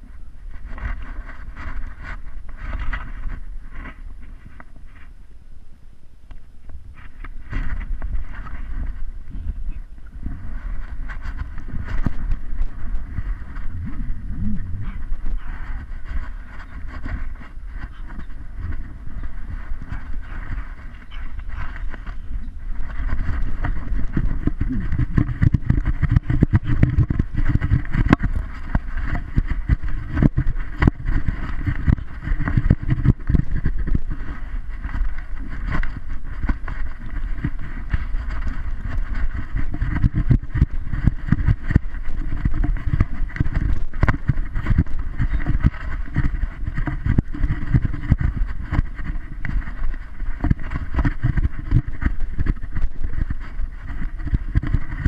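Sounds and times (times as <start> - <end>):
camera housing rubbing noise: 0.0 - 5.1, 6.9 - 55.0.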